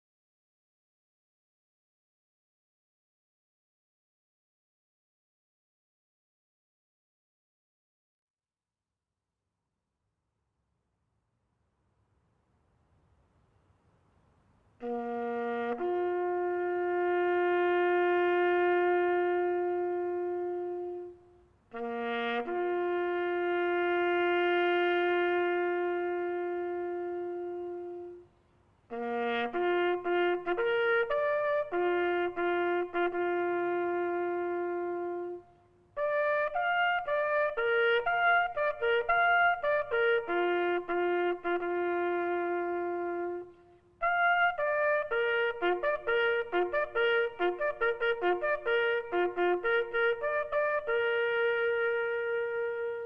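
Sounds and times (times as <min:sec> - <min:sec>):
solo trumpet bugle call: 0:14.8 - 0:53.0.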